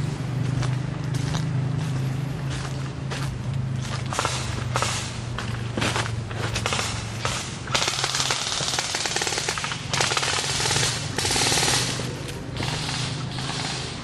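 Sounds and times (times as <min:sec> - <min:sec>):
airsoft guns firing bursts: 0:06.6 - 0:14.0.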